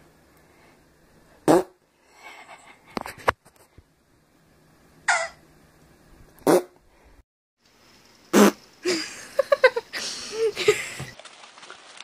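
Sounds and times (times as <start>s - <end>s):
fart noises: 1.4s - 1.8s, 6.4s - 6.8s, 8.3s - 8.6s
short squeaky fart sounds: 1.5s - 1.8s, 6.4s - 6.8s, 8.3s - 8.6s.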